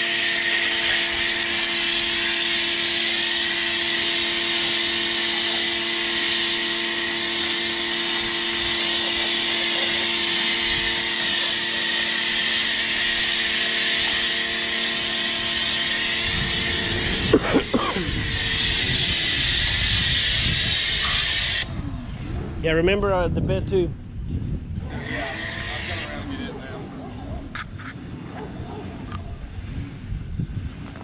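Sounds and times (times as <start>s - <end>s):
foam cannon spraying hiss: 0.0s - 21.6s
pressure washer humming: 0.0s - 22.6s, 24.8s - 29.7s.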